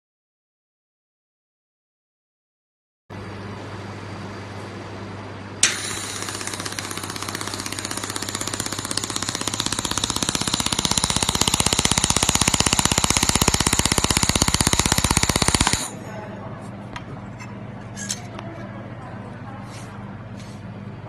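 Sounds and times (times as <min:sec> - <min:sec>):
laser welder beam click: 0:05.6 - 0:15.9
pulsing welding crackle: 0:05.6 - 0:16.0.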